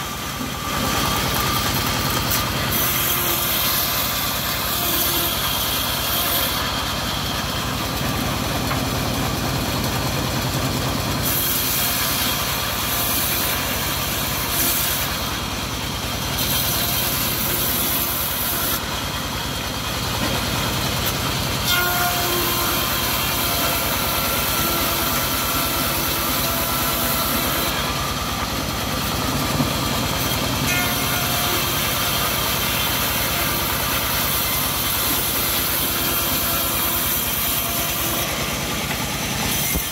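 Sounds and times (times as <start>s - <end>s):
saw blade cutting wood hiss: 0.0s - 7.4s, 11.2s - 15.4s, 16.3s - 18.9s, 21.0s - 28.1s, 30.1s - 39.9s
sawmill engine drone: 0.0s - 39.9s.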